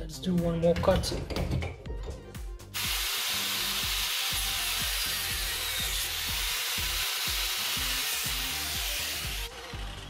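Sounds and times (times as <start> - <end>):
background music: 0.0 - 10.0
angle grinder cutting metal: 2.8 - 10.0.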